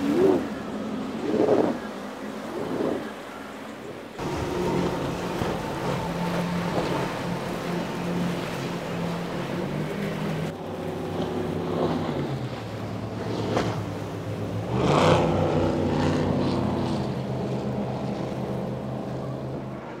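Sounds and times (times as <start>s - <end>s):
speedboat engines droning: 0.0s - 20.0s
hull spray rushing: 4.2s - 10.5s
powerboat engine running: 4.2s - 20.0s.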